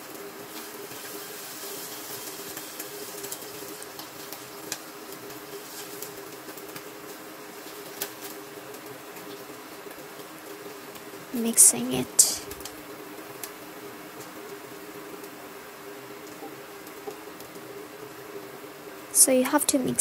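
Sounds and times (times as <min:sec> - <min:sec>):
food sizzling in oil: 0:00.0 - 0:20.0
steady hum: 0:10.6 - 0:20.0.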